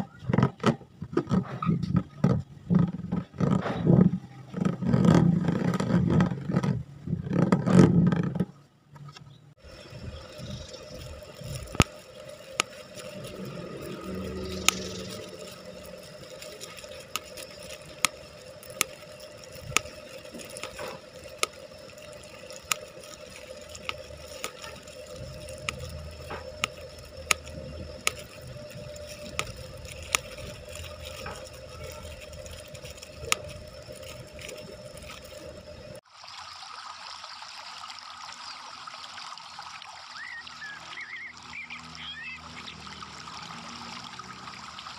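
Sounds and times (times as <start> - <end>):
boiling pot hissing: 9.6 - 44.9
plastic crinkling: 9.9 - 36.0
bubble wrap popping: 11.6 - 36.0.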